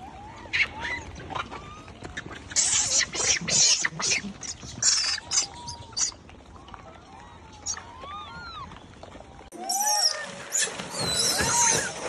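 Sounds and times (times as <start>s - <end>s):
macaques screeching: 2.5s - 6.2s, 9.6s - 12.0s.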